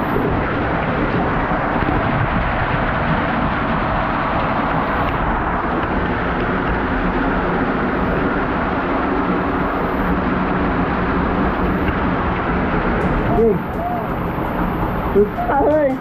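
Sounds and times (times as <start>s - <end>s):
waterfall rushing: 12.8s - 16.0s.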